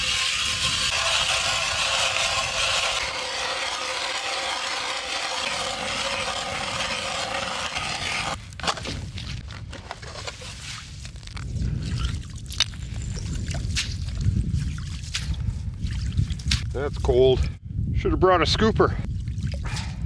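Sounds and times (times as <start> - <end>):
ice auger grinding ice: 0.0 - 8.4.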